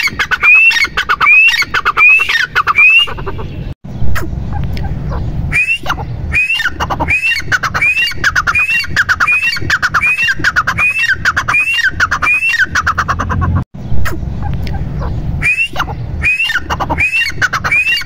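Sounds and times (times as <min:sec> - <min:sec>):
francolin calling: 0:00.0 - 0:03.6.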